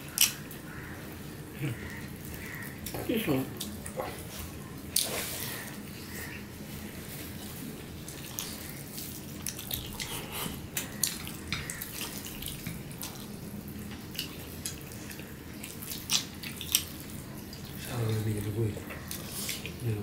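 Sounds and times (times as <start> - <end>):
people chewing food: 0.0 - 20.0.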